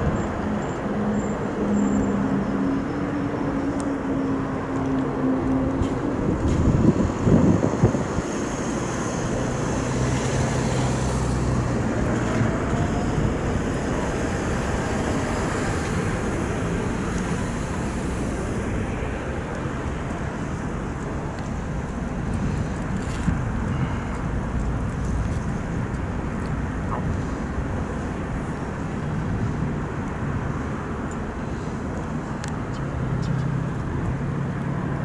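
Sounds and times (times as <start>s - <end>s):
wind buffeting microphone: 5.2s - 34.3s.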